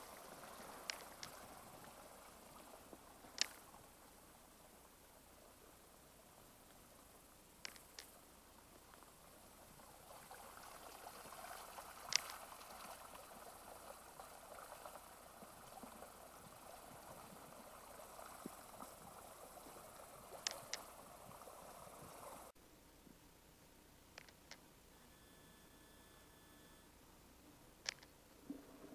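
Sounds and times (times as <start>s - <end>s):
water trickling over sand: 0.0s - 4.8s, 7.6s - 22.5s
sharp clicks: 0.8s - 1.4s, 3.3s - 3.7s, 7.6s - 8.2s, 20.4s - 20.9s, 24.2s - 24.6s, 27.8s - 28.2s.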